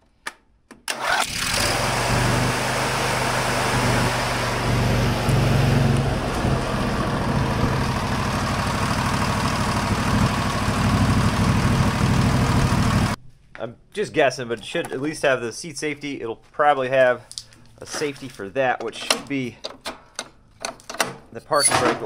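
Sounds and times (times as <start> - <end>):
mower engine starting and running: 0.9 - 13.2.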